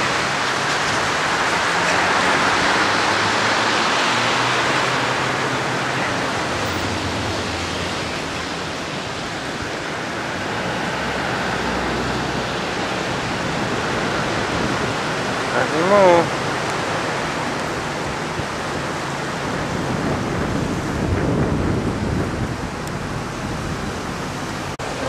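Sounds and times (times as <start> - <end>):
floodwater rushing: 0.0 - 25.0
low engine hum: 16.6 - 25.0.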